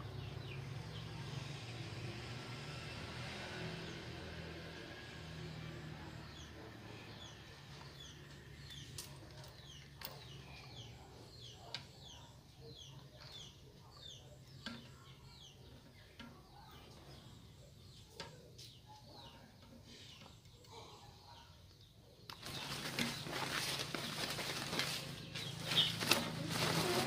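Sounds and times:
bird chirping: 6.2 - 27.0.

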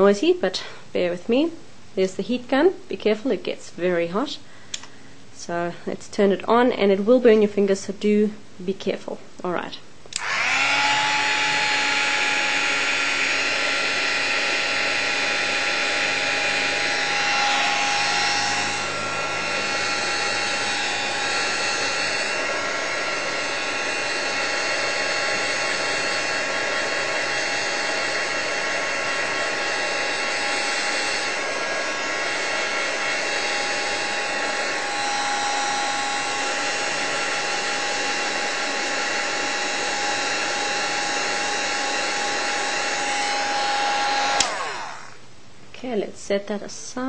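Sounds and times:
heat gun blower with motor whine: 10.1 - 45.2.

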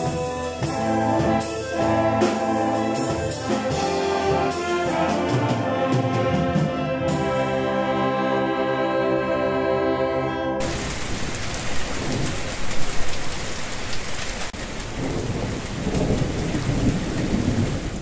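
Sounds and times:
wind band holding a chord: 0.0 - 10.8
heavy rain pouring: 10.6 - 18.0
thunder rumbling: 10.6 - 18.0.

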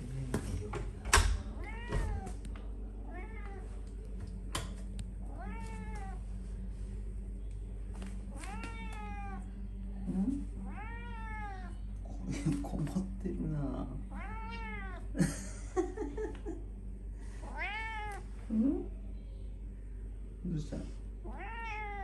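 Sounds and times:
cat meowing: 1.5 - 2.4, 3.1 - 3.7, 5.3 - 6.2, 8.3 - 9.5, 10.7 - 11.8, 14.1 - 15.1, 17.4 - 18.3, 21.2 - 22.0.

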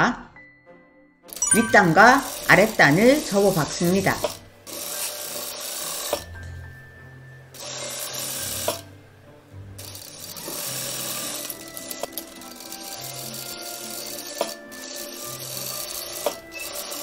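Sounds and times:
background music: 0.0 - 17.0
sewing machine stitching: 2.2 - 6.3, 7.7 - 8.8, 9.8 - 17.0.

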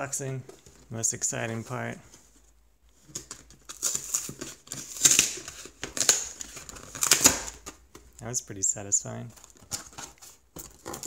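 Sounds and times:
cardboard glue seal tearing: 3.2 - 7.8, 9.7 - 11.0.

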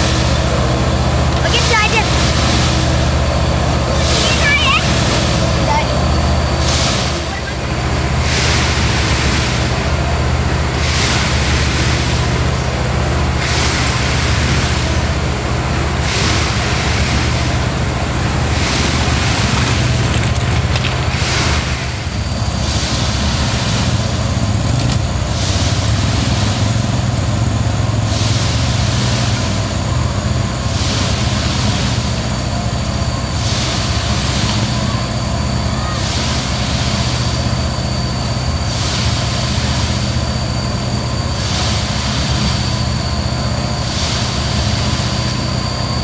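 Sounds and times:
diesel engines running: 0.0 - 46.0
hiss: 6.6 - 20.0, 20.6 - 46.0.

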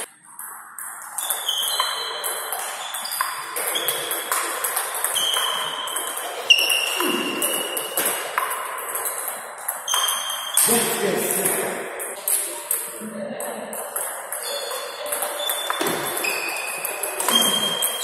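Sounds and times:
table tennis ball pinging: 0.0 - 10.8, 13.7 - 18.0.

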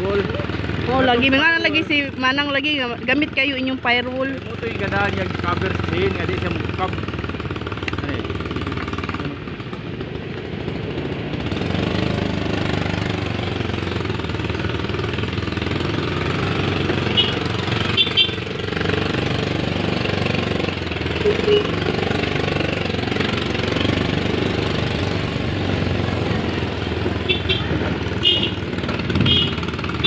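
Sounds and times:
small motorcycle engine running: 0.0 - 30.0
high-pitched blips: 21.2 - 21.9.

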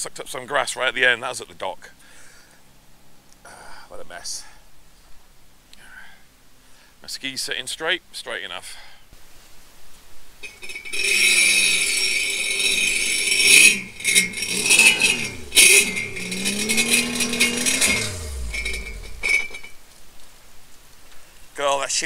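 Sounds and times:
watercraft engine revving: 13.0 - 19.6.

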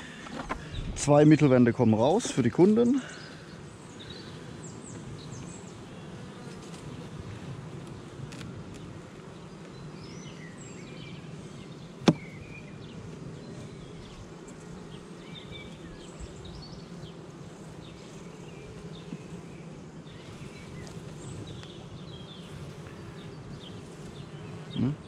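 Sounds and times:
bees buzzing: 0.0 - 25.0
sharp knock: 12.0 - 12.2.

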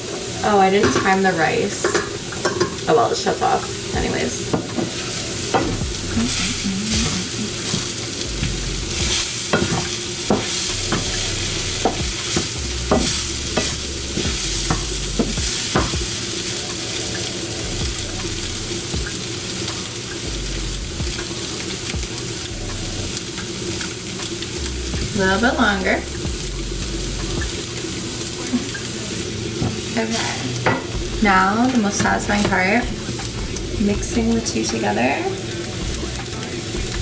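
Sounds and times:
vegetables sizzling in a pan: 0.0 - 37.0
wooden spoon scraping a pan: 9.0 - 15.9.

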